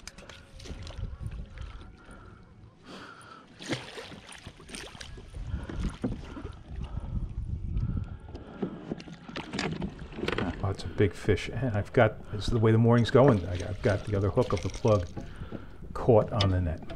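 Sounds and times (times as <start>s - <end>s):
low wind rumble: 0.6s - 2.4s, 5.1s - 8.8s, 9.8s - 16.9s
fish splashing in water: 3.5s - 6.1s.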